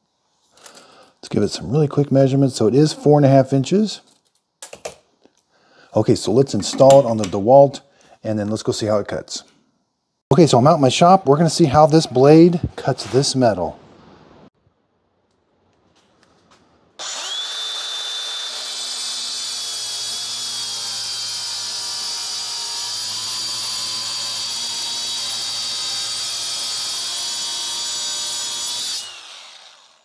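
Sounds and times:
angle grinder cutting metal: 17.0s - 30.0s.

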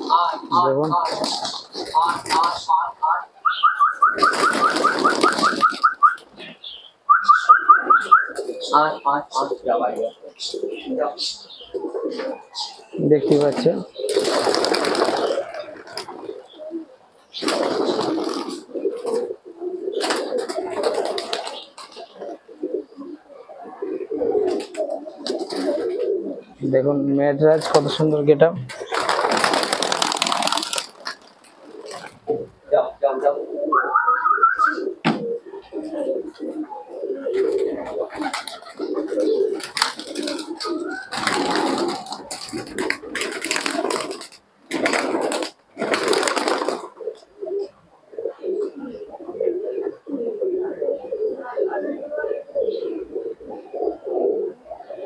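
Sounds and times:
pigeons cooing: 0.0s - 55.0s
wings flapping: 0.8s - 2.9s, 3.8s - 6.4s, 13.2s - 16.4s, 17.4s - 19.3s, 20.0s - 22.1s, 24.4s - 26.1s, 28.7s - 32.3s, 37.3s - 47.2s.

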